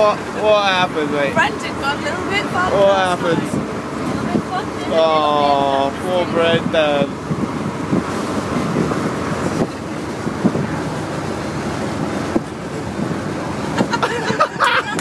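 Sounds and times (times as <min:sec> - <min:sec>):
voices: 0:00.0 - 0:07.3
bus rumbling: 0:00.0 - 0:15.0
wind noise on microphone: 0:02.8 - 0:15.0
people laughing: 0:13.6 - 0:15.0.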